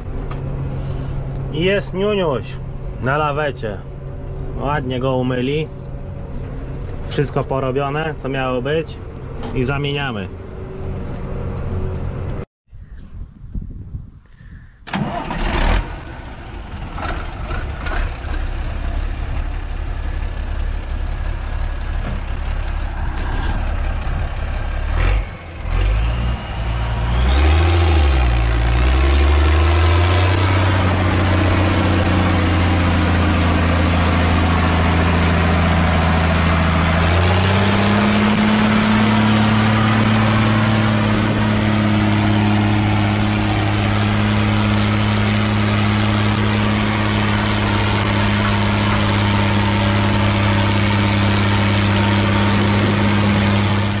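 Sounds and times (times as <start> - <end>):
tractor diesel engine revving: 14.9 - 54.0.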